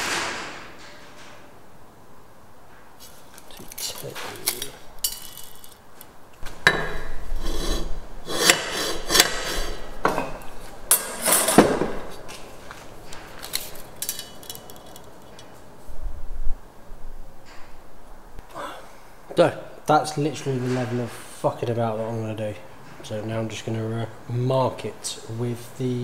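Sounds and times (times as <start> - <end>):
metal scraping: 3.0 - 5.8, 6.7 - 15.7.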